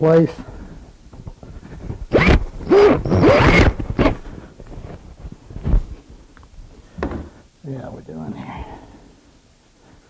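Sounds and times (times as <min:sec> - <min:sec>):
thump: 0:07.0 - 0:07.3.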